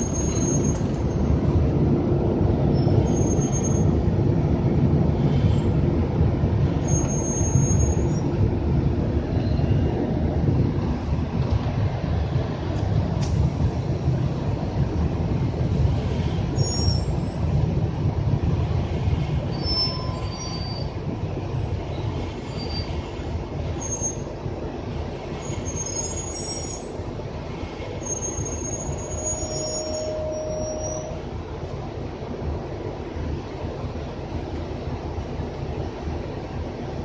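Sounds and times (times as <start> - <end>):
bus engine and road rumble: 0.0 - 37.0
high squeaks and squeals: 19.5 - 20.9, 25.5 - 26.9, 28.1 - 31.2.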